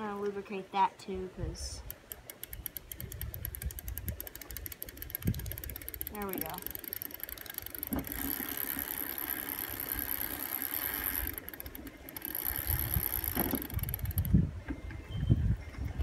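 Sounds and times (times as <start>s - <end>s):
bicycle chain running over sprockets: 1.8s - 14.4s.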